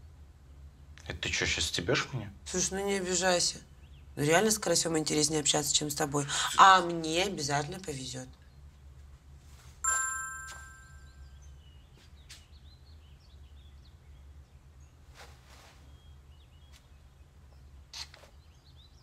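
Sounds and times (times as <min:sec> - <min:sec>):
faint birds chirping: 0:00.0 - 0:09.8, 0:10.6 - 0:19.0
bright chime: 0:09.8 - 0:11.4.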